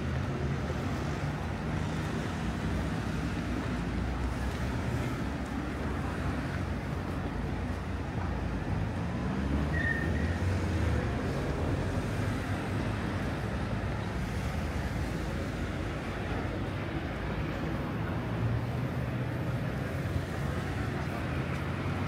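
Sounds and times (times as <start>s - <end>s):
passing cars: 0.0s - 22.0s
short high squeak: 9.7s - 10.4s.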